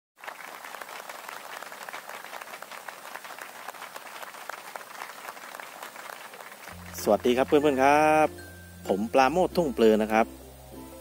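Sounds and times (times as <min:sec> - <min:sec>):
crowd applauding: 0:00.2 - 0:08.3.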